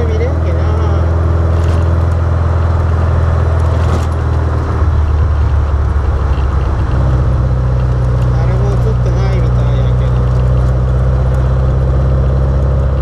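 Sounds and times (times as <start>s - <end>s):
road noise: 0.0s - 13.0s
sports car engine running: 0.0s - 13.0s
wind noise: 0.9s - 9.1s.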